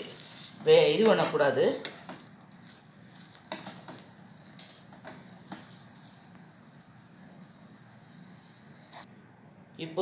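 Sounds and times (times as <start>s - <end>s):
spatula scraping and knocking pan: 0.0s - 6.4s
chillies sizzling in oil: 0.0s - 9.1s.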